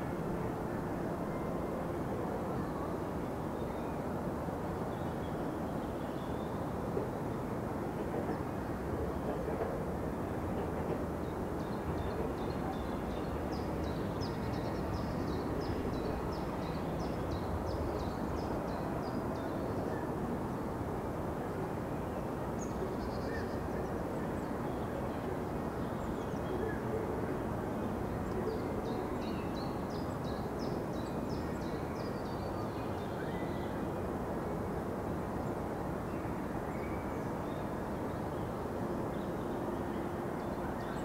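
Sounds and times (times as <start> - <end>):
wind through trees: 0.0 - 41.0.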